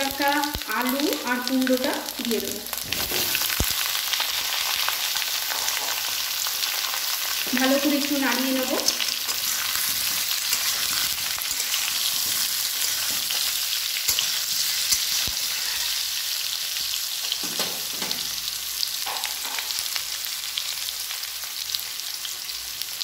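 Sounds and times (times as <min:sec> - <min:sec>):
vegetables sizzling in oil: 0:00.0 - 0:23.0
metal spatula scraping a pan: 0:05.4 - 0:06.1, 0:08.8 - 0:16.4.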